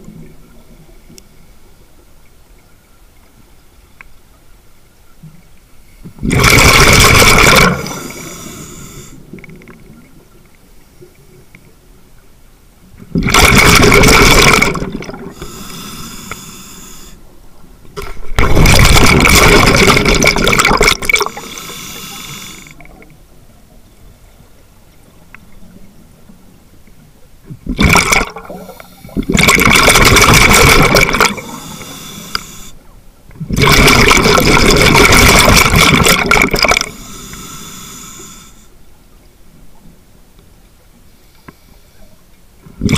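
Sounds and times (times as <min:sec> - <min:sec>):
exhaled bubbles rushing: 0:06.2 - 0:08.2, 0:13.2 - 0:15.4, 0:18.2 - 0:21.4, 0:27.6 - 0:31.6, 0:33.4 - 0:36.9
regulator inhalation hiss: 0:07.5 - 0:09.2, 0:15.3 - 0:17.2, 0:21.1 - 0:22.8, 0:28.6 - 0:29.4, 0:30.6 - 0:32.8, 0:36.8 - 0:38.7.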